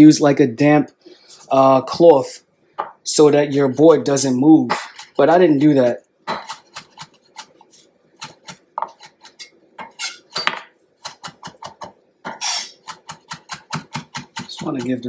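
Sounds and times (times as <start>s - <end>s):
knife scraping board: 4.7s - 5.7s, 6.3s - 10.4s, 11.0s - 15.0s
knife chopping on wooden board: 4.7s - 7.6s, 8.2s - 15.0s.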